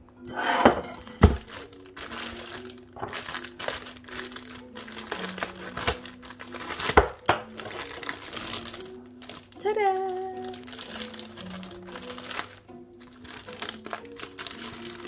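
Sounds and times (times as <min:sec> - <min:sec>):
knife cutting plastic: 0:00.6 - 0:09.4
plastic bag crinkling: 0:00.8 - 0:15.0.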